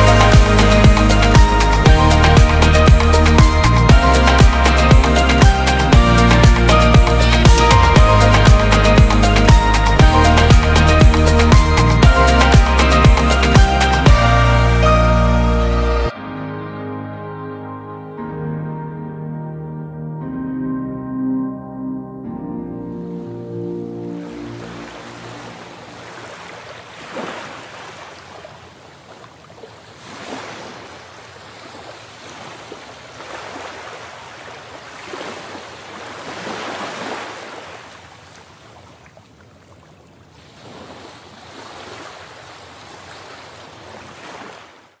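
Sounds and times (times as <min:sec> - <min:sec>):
sea waves washing onto shore: 0:24.1 - 0:45.0.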